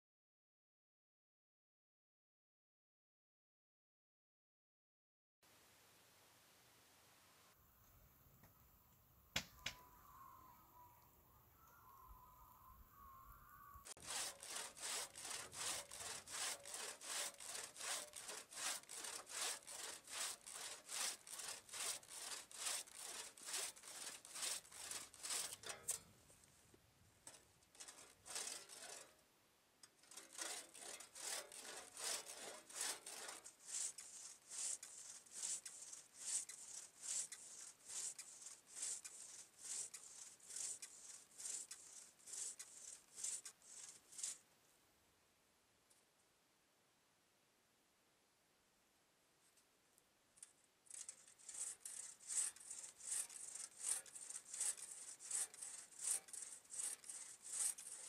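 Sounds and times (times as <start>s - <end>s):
crosscut saw cutting a log: 13.9s - 26.0s, 27.3s - 29.2s, 30.0s - 44.4s, 50.9s - 58.0s.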